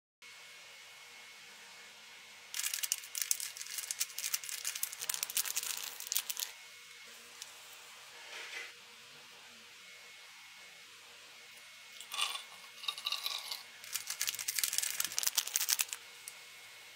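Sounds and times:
plastic packet crinkling: 2.6 - 6.5, 12.1 - 16.0
plastic rustle: 2.6 - 6.5, 13.8 - 16.0.

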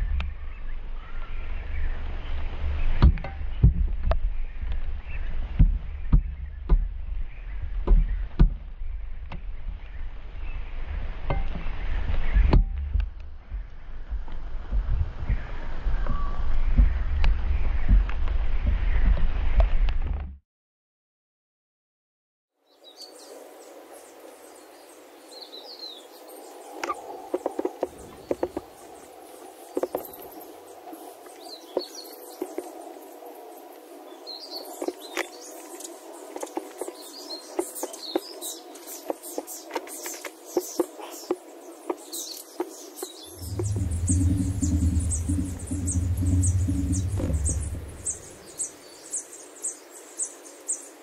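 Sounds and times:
small birds chirping: 22.6 - 51.0
low rumble: 43.3 - 48.7.

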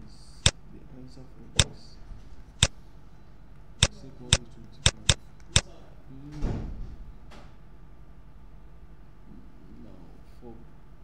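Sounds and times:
stylus tapping tablet screen: 3.8 - 5.6.

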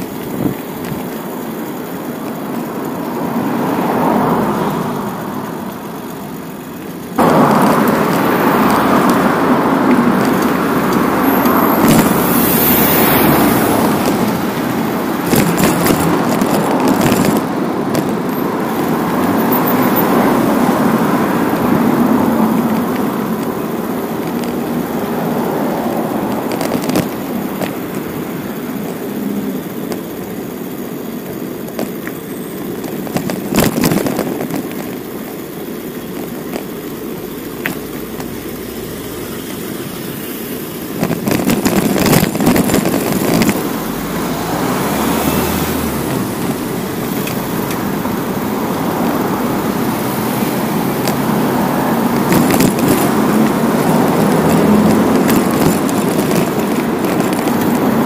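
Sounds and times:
road traffic rush: 0.0 - 58.0
sharp knocks and clicks: 13.4 - 20.2, 50.0 - 58.0.

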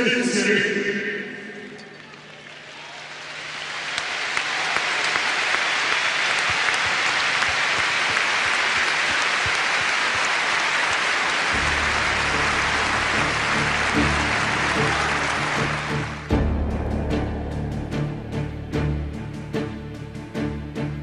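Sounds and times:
stadium crowd applauding: 1.7 - 16.8
low music: 11.5 - 21.0.

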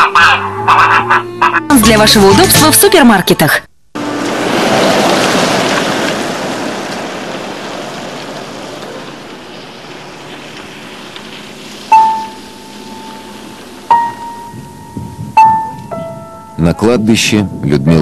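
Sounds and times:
ringing piano notes: 11.9 - 18.0.

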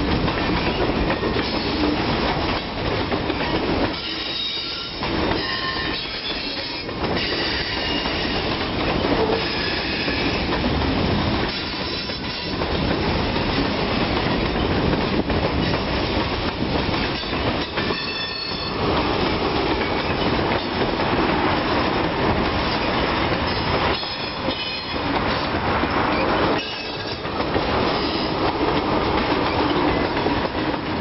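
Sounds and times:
freight train cars rumbling: 0.0 - 31.0
wheels squealing against rail: 1.4 - 2.0, 3.9 - 8.5, 9.1 - 10.5, 11.5 - 12.6, 17.2 - 18.8, 23.5 - 25.1, 26.1 - 27.3, 27.9 - 28.4.

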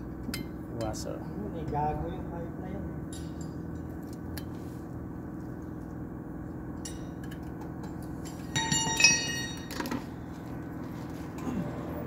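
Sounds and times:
steady low hum: 0.0 - 12.0
metal hardware clinking: 6.8 - 10.1.

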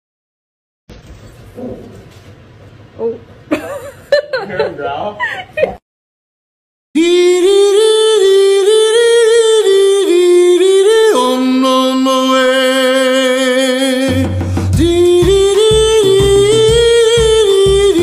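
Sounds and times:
person singing: 7.0 - 18.0
low pulsing beat: 14.1 - 18.0.

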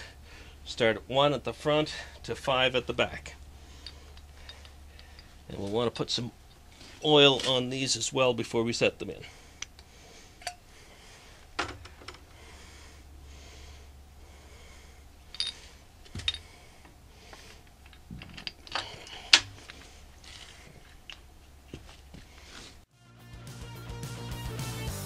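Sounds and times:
metal bearing caps clinking: 1.9 - 6.6, 15.2 - 21.4.

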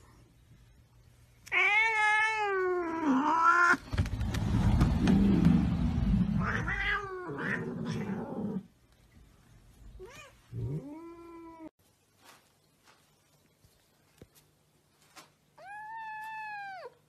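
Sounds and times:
low rumbling noise: 3.8 - 7.1
cat meowing: 6.4 - 8.3
cats yowling: 6.4 - 8.6.

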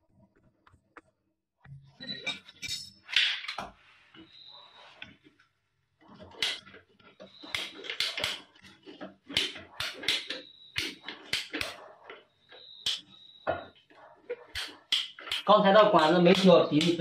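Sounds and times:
hand tools clicking and knocking: 6.0 - 17.0.

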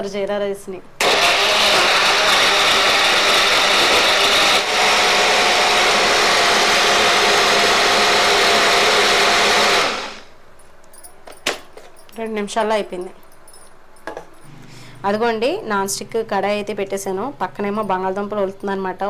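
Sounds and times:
blender motor running: 1.0 - 10.3.

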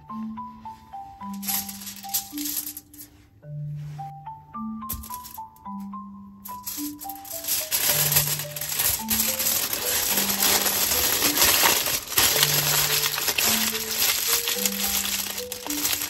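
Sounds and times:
simple background tune: 0.0 - 16.0
aluminium foil crinkling: 1.4 - 3.0, 6.5 - 16.0.

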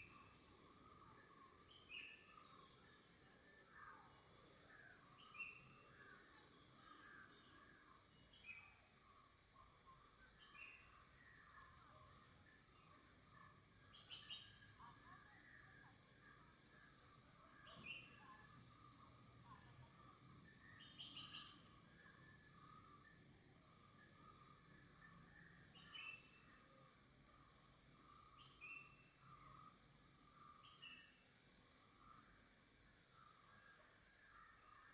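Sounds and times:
small birds chirping: 20.4 - 21.8.

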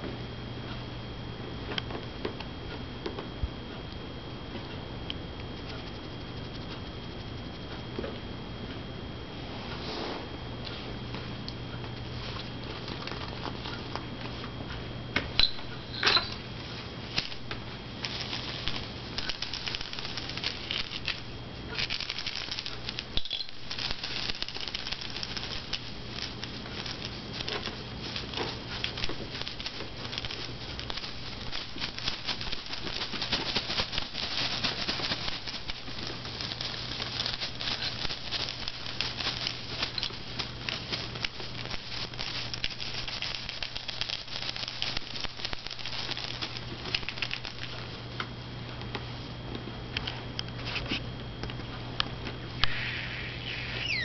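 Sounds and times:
steady low hum: 0.0 - 54.0
plastic rustling: 12.1 - 14.4, 16.6 - 48.0.

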